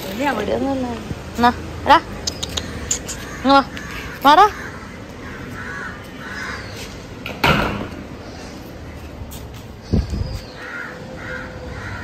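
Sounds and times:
crows cawing: 0:03.2 - 0:07.0, 0:10.6 - 0:12.0.

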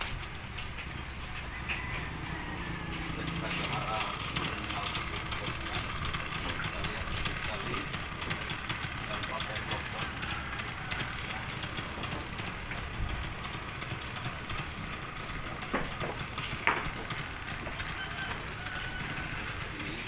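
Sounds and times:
low engine rumble: 0:00.0 - 0:20.0
sharp knocks: 0:15.6 - 0:17.4.

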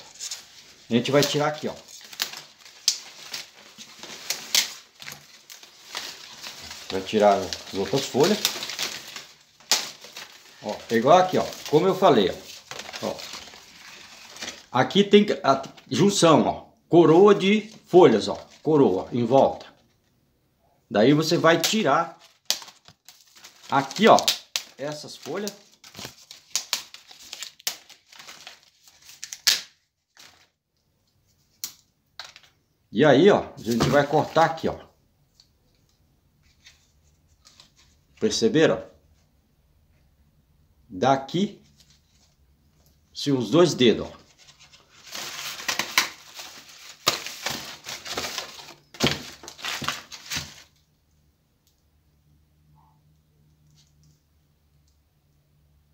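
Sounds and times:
branch snapping: 0:01.1 - 0:10.4.

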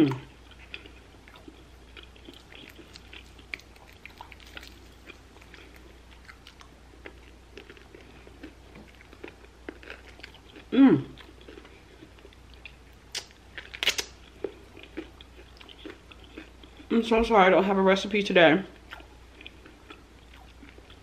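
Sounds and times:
steady low hum: 0:00.0 - 0:21.0
wet mouth clicks and smacks chewing: 0:00.8 - 0:06.7.

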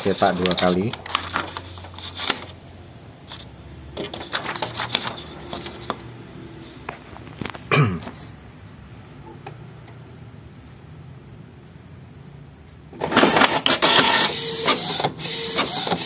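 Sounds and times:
paper and plastic parts clicking: 0:00.0 - 0:02.5, 0:03.3 - 0:06.0
printer clatter: 0:04.0 - 0:06.0, 0:13.0 - 0:16.0.

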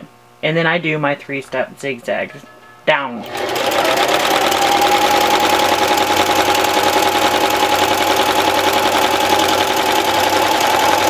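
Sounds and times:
sewing machine running: 0:03.2 - 0:11.0.

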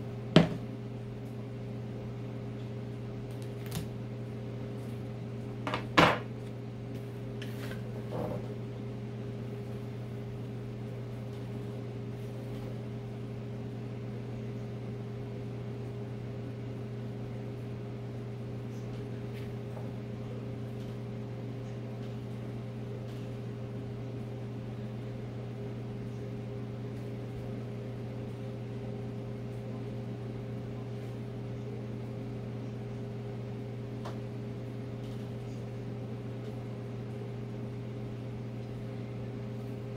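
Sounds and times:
electric motor and fan humming: 0:00.0 - 0:39.9.

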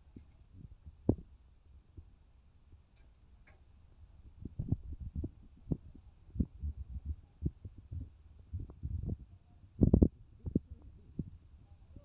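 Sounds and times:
faint low hum: 0:00.0 - 0:12.0
wind buffeting phone microphone: 0:04.2 - 0:12.0.

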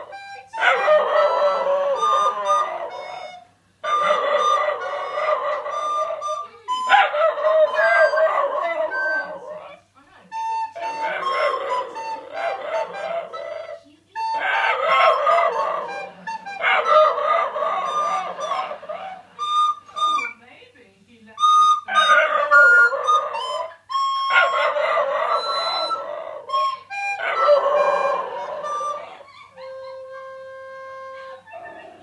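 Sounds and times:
dog howling: 0:00.0 - 0:09.8, 0:10.4 - 0:20.4, 0:21.7 - 0:32.0
recorder notes: 0:10.3 - 0:20.4, 0:21.4 - 0:31.6.

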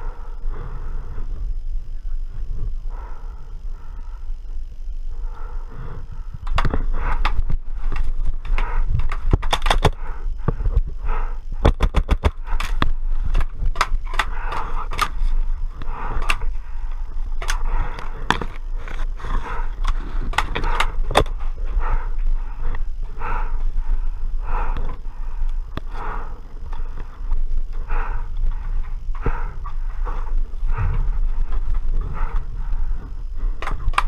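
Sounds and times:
steady low rumble: 0:00.0 - 0:34.0
paintball markers firing: 0:11.6 - 0:15.2.

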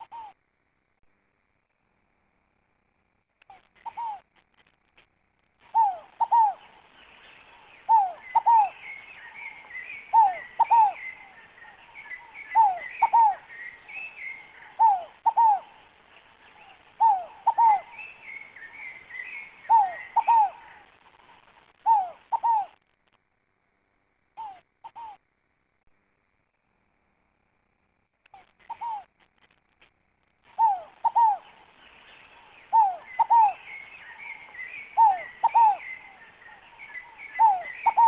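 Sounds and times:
dove cooing: 0:00.0 - 0:00.4, 0:03.5 - 0:04.3, 0:05.6 - 0:06.9, 0:07.5 - 0:15.9, 0:16.5 - 0:22.8, 0:24.4 - 0:25.2, 0:28.4 - 0:29.1, 0:30.4 - 0:38.0
birds chirping faintly: 0:00.0 - 0:38.0.

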